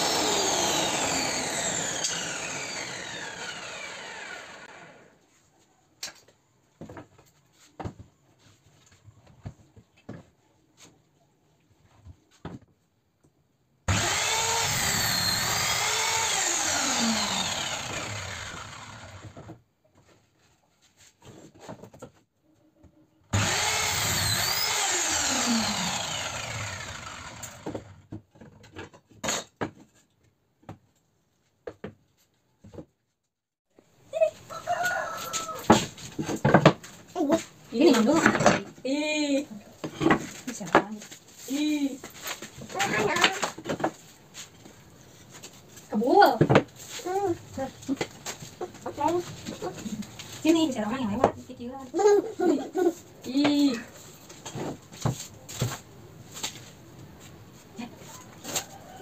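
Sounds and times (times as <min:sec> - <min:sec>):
table saw cutting plywood: 0:00.0 - 0:05.2, 0:13.9 - 0:19.6, 0:23.4 - 0:28.0.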